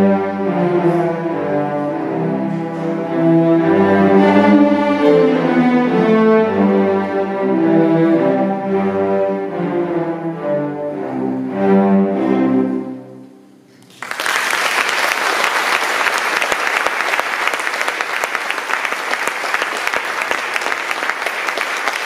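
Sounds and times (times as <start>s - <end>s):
cello ensemble playing: 0.0s - 13.7s
audience applause: 13.8s - 22.0s.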